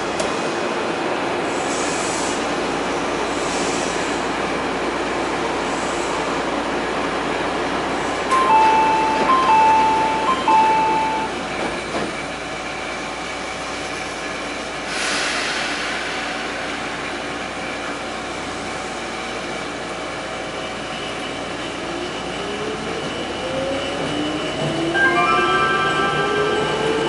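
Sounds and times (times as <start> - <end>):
train running noise: 0.0 - 27.0
two-note announcement chime: 8.3 - 11.4, 25.0 - 27.0
brief hiss: 14.8 - 18.1.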